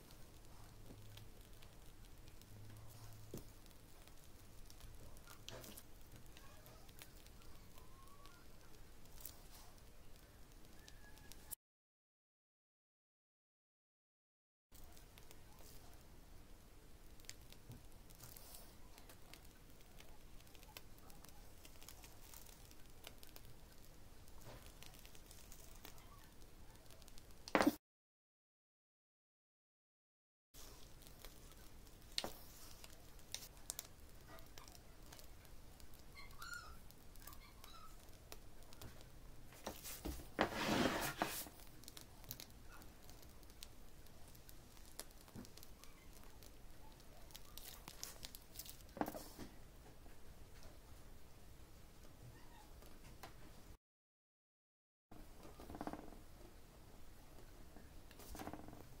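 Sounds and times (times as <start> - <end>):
piping bag crinkling and squishing: 0.0 - 11.5, 14.8 - 27.6, 30.6 - 50.9, 57.0 - 59.0.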